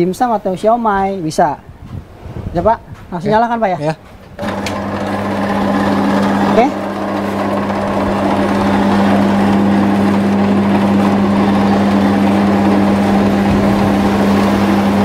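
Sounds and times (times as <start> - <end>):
noodle cutting machine humming: 4.4 - 15.0.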